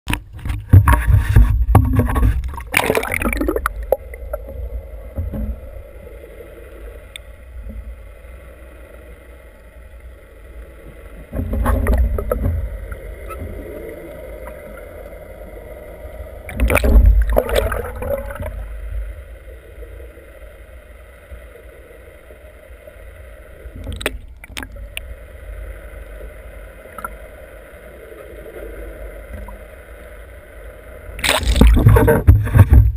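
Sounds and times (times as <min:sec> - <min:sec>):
faint steady hum: 0:00.1 - 0:32.9
muffled underwater wash: 0:00.1 - 0:32.9
water splashing and rumbling: 0:00.1 - 0:32.9.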